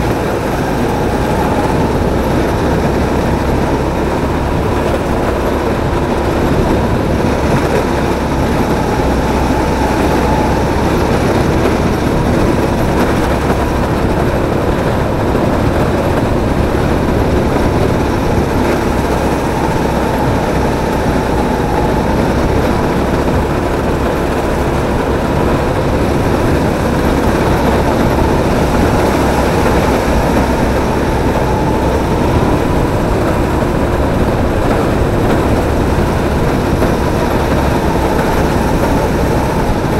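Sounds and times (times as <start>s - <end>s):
kart engine running: 0.0s - 39.9s.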